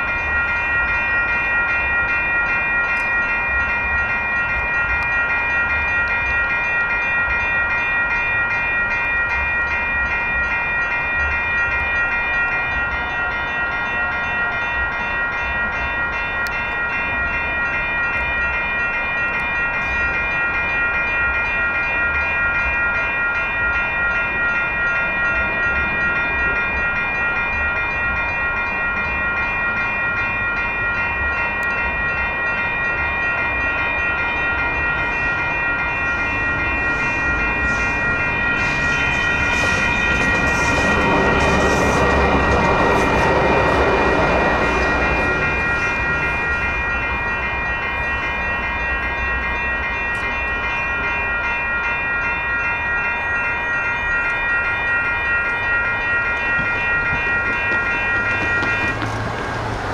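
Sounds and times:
crossing signal bells ringing: 0.0s - 59.9s
train rumble: 0.0s - 59.9s.

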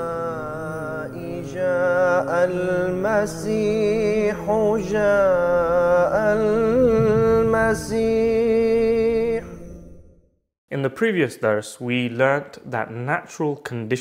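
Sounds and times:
man chanting melody: 0.0s - 9.6s.

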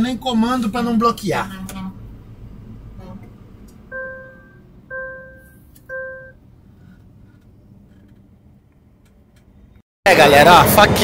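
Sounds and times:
low road noise: 0.0s - 11.0s
electronic beeps: 3.9s - 6.4s.

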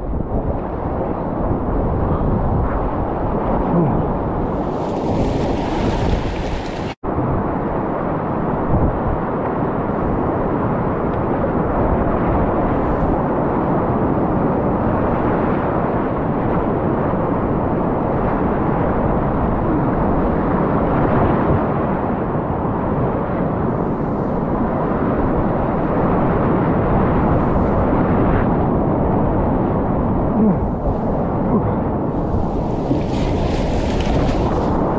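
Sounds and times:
waves slapping a boat: 4.5s - 7.0s, 32.1s - 34.9s.

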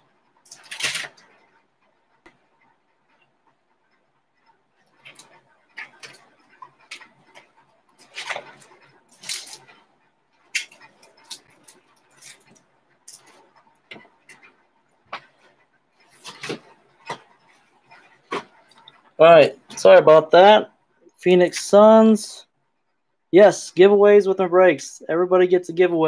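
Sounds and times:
card packaging rustling: 16.1s - 17.2s.

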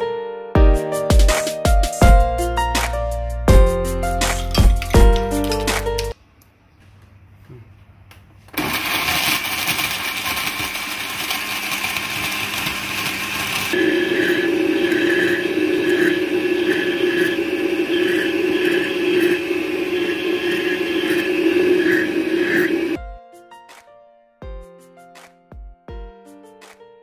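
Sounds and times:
blender crushing ice: 8.5s - 19.3s.

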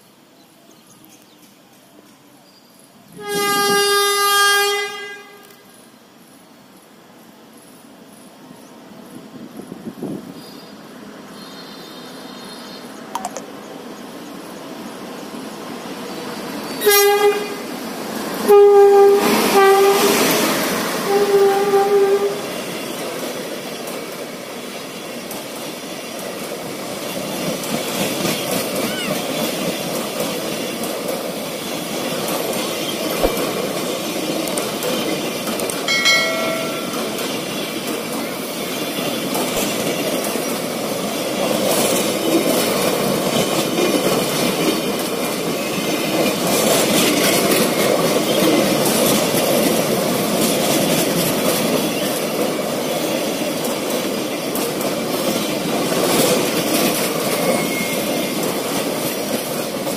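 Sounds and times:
train rumble and rush: 0.0s - 59.9s
train horn blasts: 3.1s - 5.8s, 16.8s - 17.7s, 18.4s - 20.4s, 21.0s - 22.5s
sharp knock: 33.2s - 33.4s.

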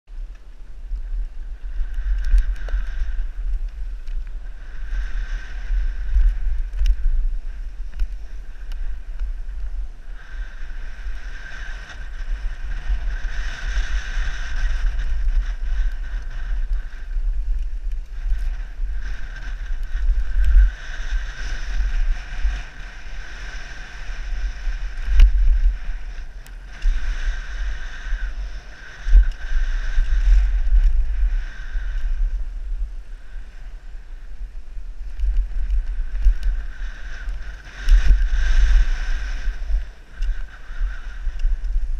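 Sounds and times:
wind rumble on microphone: 0.0s - 41.9s
bicycle hub freewheeling buzz: 0.2s - 41.9s.

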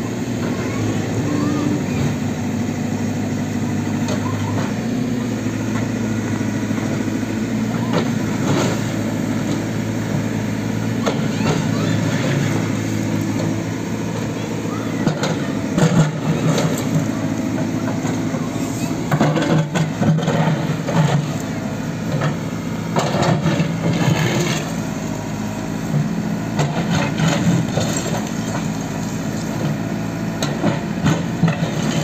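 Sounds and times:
diesel engine running under load: 0.0s - 32.0s
concrete rubble scraping and clattering: 26.6s - 29.9s.

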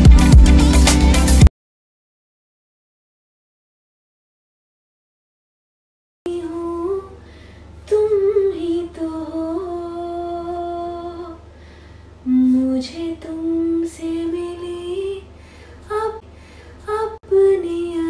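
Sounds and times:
woman singing unaccompanied: 6.3s - 7.2s, 7.8s - 11.5s, 12.2s - 16.2s, 16.8s - 18.0s.

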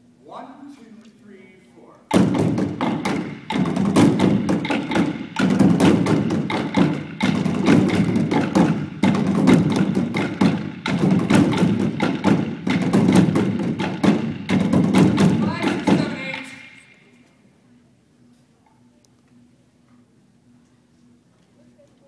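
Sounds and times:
drumming on plastic bins: 2.1s - 17.0s.

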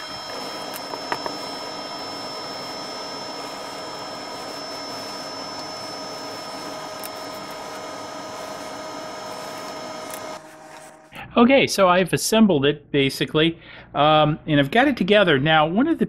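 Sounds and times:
mechanical whir with tones: 0.0s - 11.2s.

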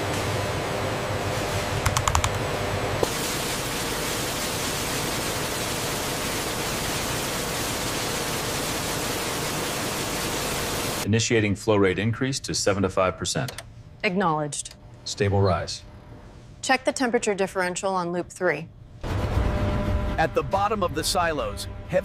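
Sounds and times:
factory hum: 0.0s - 22.0s
keyboard clicks: 1.8s - 2.4s
industrial rushing hiss: 3.0s - 11.0s.

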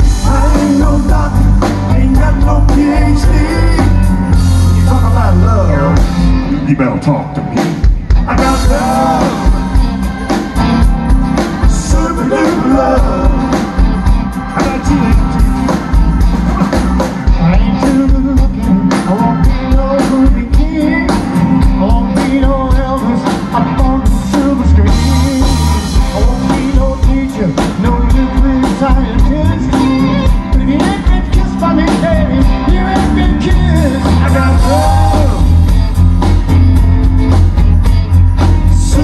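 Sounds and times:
steady drum beat: 0.0s - 6.6s, 7.4s - 39.0s
person singing: 0.0s - 35.9s, 38.4s - 39.0s
live rock band playing: 0.0s - 39.0s.

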